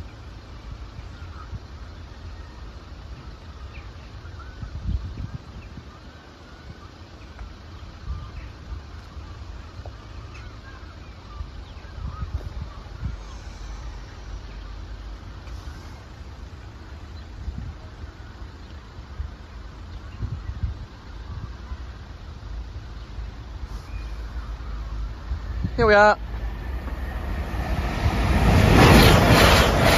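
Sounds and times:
wind buffeting microphone: 4.4 - 6.9, 11.2 - 14.0, 17.2 - 18.1, 19.1 - 22.5, 24.6 - 29.9
faint bird calls: 23.0 - 25.6.

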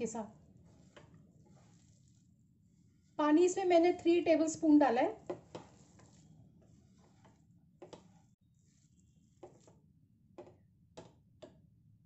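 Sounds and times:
hand squishing moist mixture: 0.3 - 4.0, 5.1 - 9.9.

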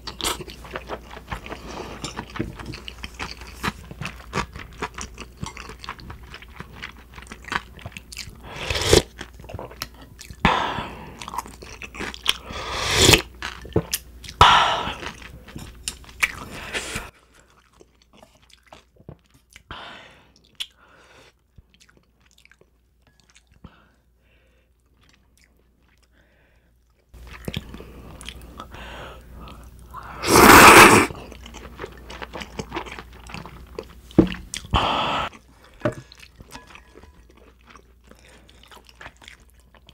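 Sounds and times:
chewing and crunching noodles: 0.0 - 12.5, 13.1 - 19.7, 20.3 - 39.9.

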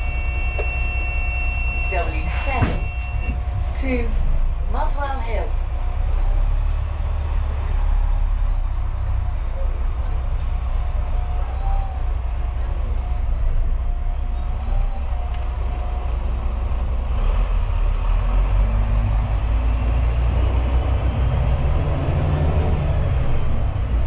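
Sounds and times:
bus engine rumbling: 0.0 - 24.0
brief high squeaks: 14.4 - 15.4.

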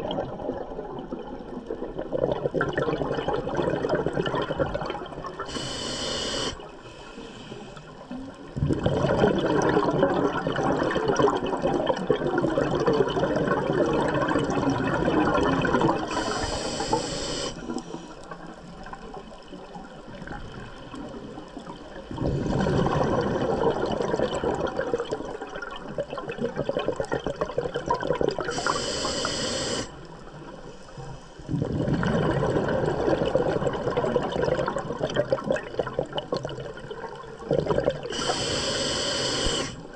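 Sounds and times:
bubbling exhaled air: 0.0 - 6.7, 8.5 - 17.9, 22.0 - 30.1, 31.4 - 39.9
regulator hissing: 5.5 - 6.6, 16.1 - 17.6, 28.6 - 29.9, 38.1 - 39.8.

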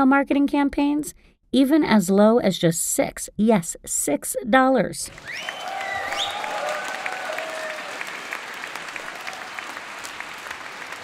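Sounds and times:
crowd applauding: 5.1 - 11.0
faint cheers: 5.1 - 11.0.

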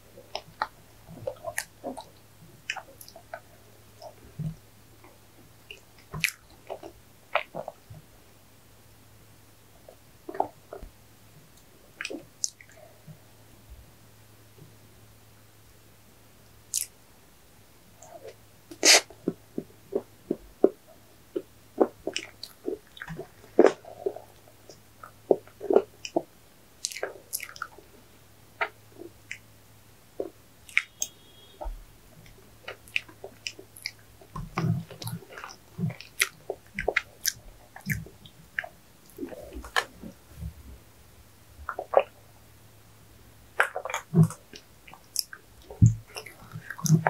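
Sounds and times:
person chewing sweets: 0.1 - 4.4, 5.0 - 7.9, 16.7 - 17.0, 18.0 - 28.0, 30.2 - 40.4, 41.6 - 42.2, 43.5 - 47.0
wet mouth clicks and smacks: 2.7 - 3.4, 5.7 - 7.8, 16.7 - 16.9, 21.4 - 27.8, 30.2 - 39.9, 41.7 - 42.1, 43.6 - 47.0.

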